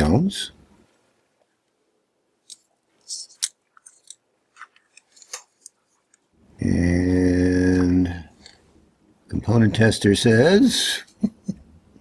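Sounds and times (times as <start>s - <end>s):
man speaking: 0.0s - 0.6s, 6.6s - 8.4s, 9.3s - 11.2s.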